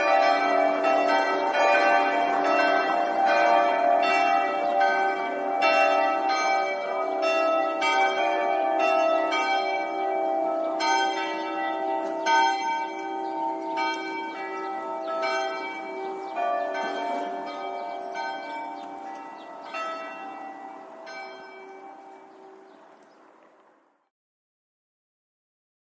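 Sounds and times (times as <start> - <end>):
church bells ringing: 0.0 - 23.4.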